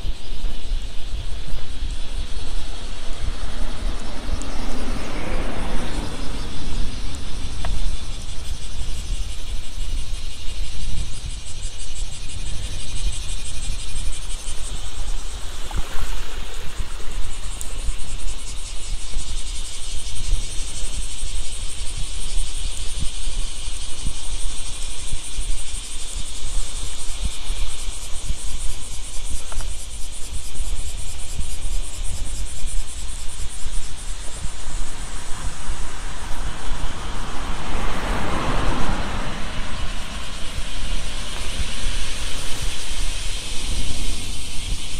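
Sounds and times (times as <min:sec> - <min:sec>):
insects chorus: 0:00.0 - 0:44.9
wind rumble on microphone: 0:00.0 - 0:44.9
car approaching: 0:01.6 - 0:10.5, 0:33.4 - 0:44.9.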